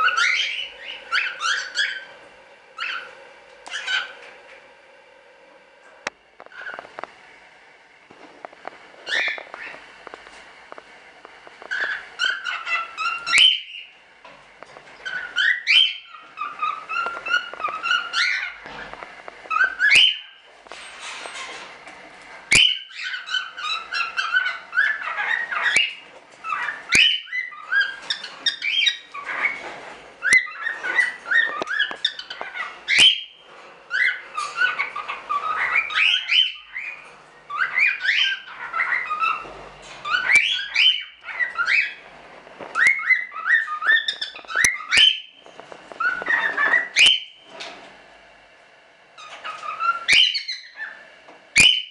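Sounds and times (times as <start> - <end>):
cockatiel whistling and chirping: 0.0 - 2.1, 2.8 - 3.1, 3.7 - 4.2, 9.0 - 9.8, 11.6 - 13.9, 15.0 - 18.8, 19.5 - 20.4, 22.5 - 42.0, 42.7 - 45.4, 46.0 - 47.4, 49.2 - 51.0, 51.6 - 51.9.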